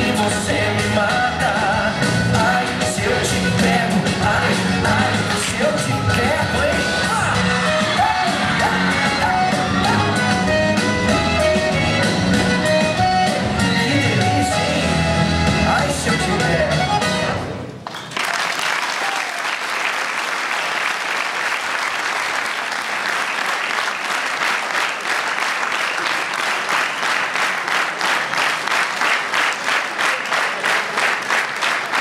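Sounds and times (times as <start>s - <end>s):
rhythmic clapping in unison: 0.0s - 14.4s, 17.8s - 32.0s
recorded music: 0.0s - 17.8s
audience applauding: 17.8s - 32.0s.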